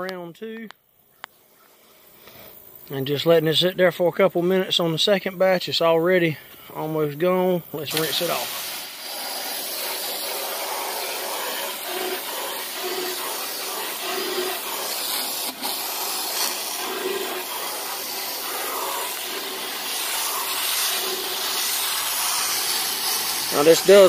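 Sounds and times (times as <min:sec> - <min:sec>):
hose spray splashing on metal: 0:07.8 - 0:24.0.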